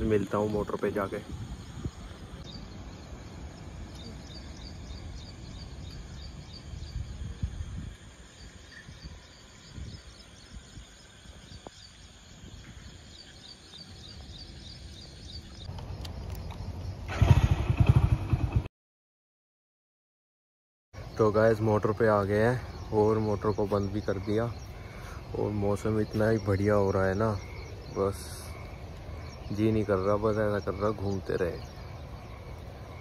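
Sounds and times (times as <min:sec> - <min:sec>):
wind rumble on microphone: 0:00.0 - 0:13.1
motorcycle engine running: 0:16.8 - 0:18.7.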